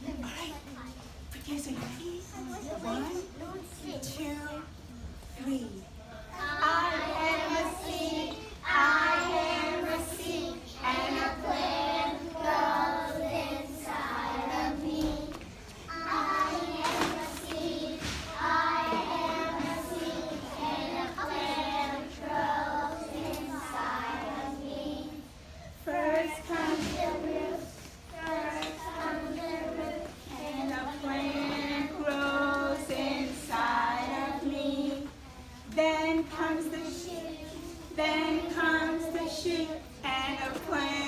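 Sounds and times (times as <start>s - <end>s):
children singing: 6.4s - 15.3s, 15.9s - 25.2s.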